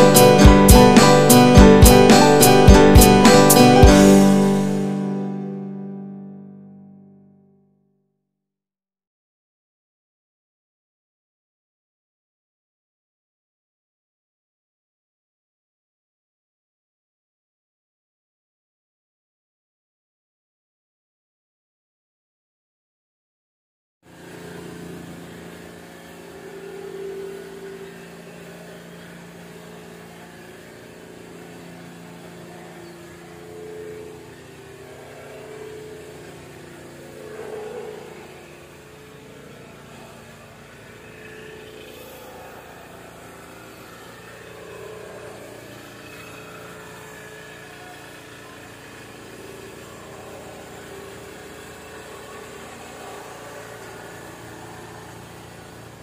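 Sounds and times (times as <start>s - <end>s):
engine running steadily: 0.0s - 5.4s, 24.1s - 56.0s.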